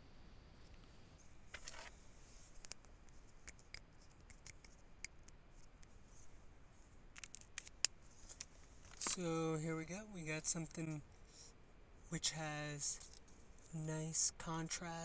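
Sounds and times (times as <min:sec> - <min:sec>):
sketchbook rustle: 0:00.6 - 0:04.9
pen light clicks and ticks: 0:02.6 - 0:05.8.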